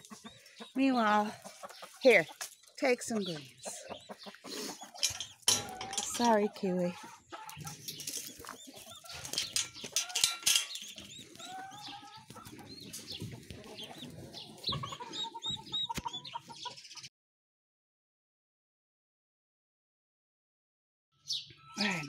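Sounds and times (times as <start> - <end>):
chicks peeping: 0.0 - 17.1
hen clucking low: 11.0 - 16.7.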